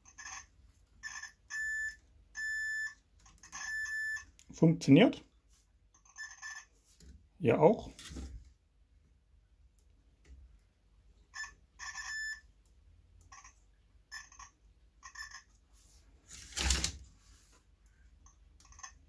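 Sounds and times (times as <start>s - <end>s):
continuity tester beeping: 1.0s - 3.0s.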